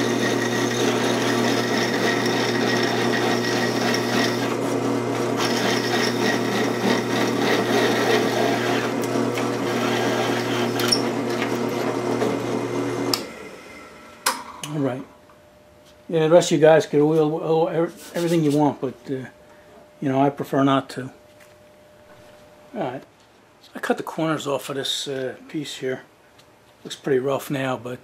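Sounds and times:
drill bit cutting metal: 0.0 - 13.3
drill press humming: 0.0 - 14.6.

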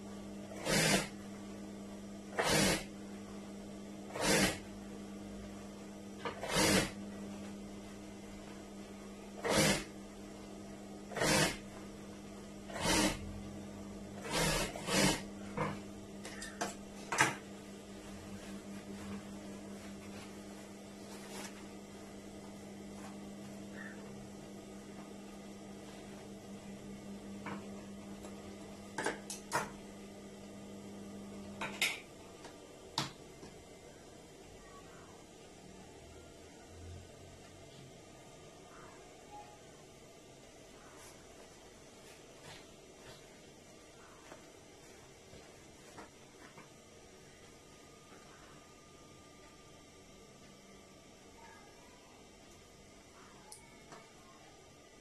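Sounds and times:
sewing machine motor hum: 0.0 - 29.8
sewing machine stitching: 0.5 - 1.1, 2.3 - 2.9, 4.1 - 4.7, 6.2 - 7.0, 9.4 - 9.9, 11.1 - 11.7, 12.7 - 13.3, 14.2 - 15.3.

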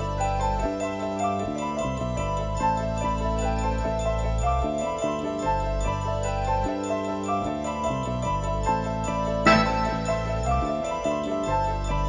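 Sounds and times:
low bass line: 7.7 - 12.0
held melody notes: 9.3 - 11.8.

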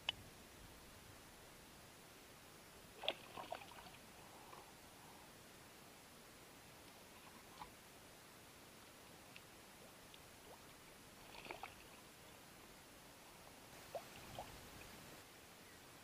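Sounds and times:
small faint clicks: 0.0 - 0.2, 8.8 - 10.8
faint water lapping: 2.9 - 5.4, 8.8 - 15.2.

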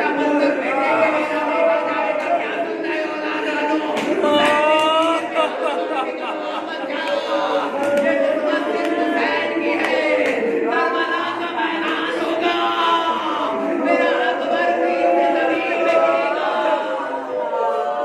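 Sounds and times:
men chanting together: 0.0 - 18.0.

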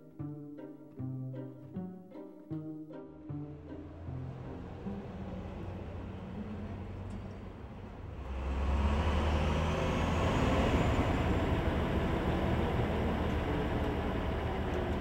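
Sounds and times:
city road noise: 3.2 - 15.0
heavy vehicle passing: 3.3 - 15.0.

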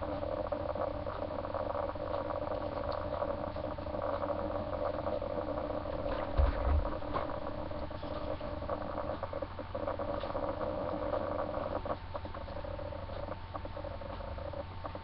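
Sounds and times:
steady hum: 0.0 - 15.0
dull low thump: 6.2 - 7.3.

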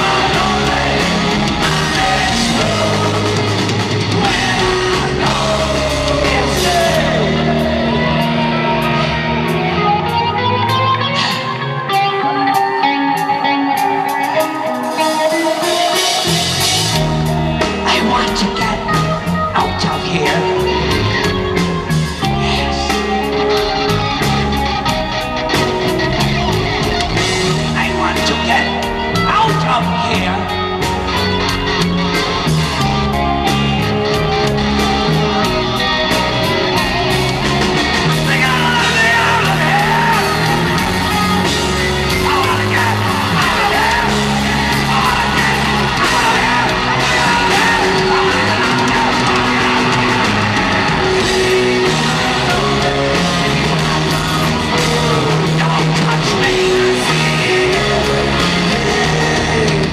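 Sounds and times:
man singing and yelling: 0.0 - 26.0, 26.7 - 31.3, 32.8 - 59.9
live hard rock band: 0.0 - 59.9.

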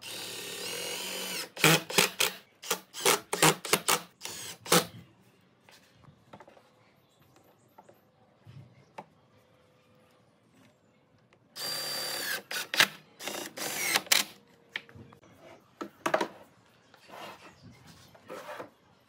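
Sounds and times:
cordless drill driving screws: 11.6 - 14.3.

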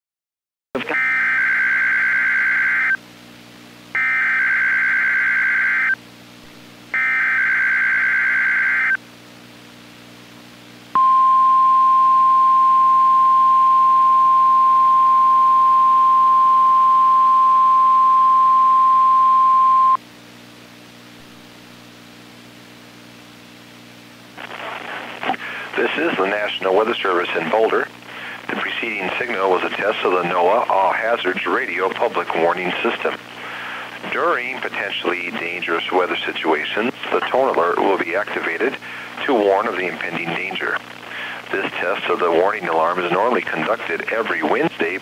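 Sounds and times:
low steady hum: 0.8 - 45.0
steady warning alarm tone: 1.0 - 3.0, 4.0 - 6.0, 7.0 - 9.0, 11.0 - 20.0.

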